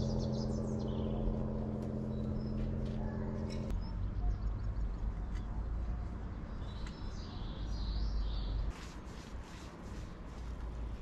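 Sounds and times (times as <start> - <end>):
low rumble: 0.0 - 5.3
small birds chirping: 0.0 - 8.7.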